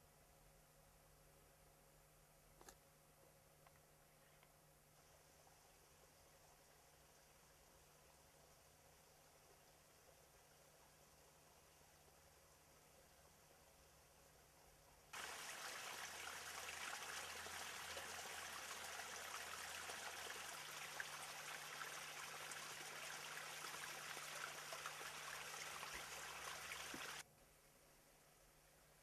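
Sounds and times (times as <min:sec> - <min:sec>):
water trickling over stones: 0:15.1 - 0:27.2.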